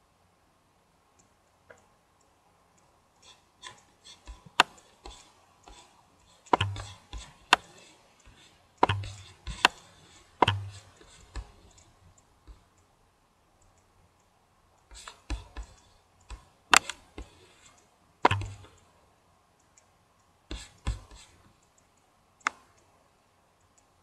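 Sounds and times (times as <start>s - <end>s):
computer mouse clicking: 1.2s - 12.9s, 13.6s - 19.0s, 19.6s - 23.0s, 23.6s - 24.0s.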